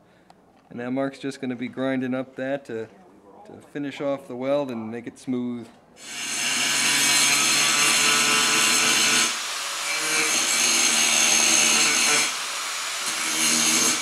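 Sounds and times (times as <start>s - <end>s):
angle grinder grinding metal: 6.0s - 14.0s.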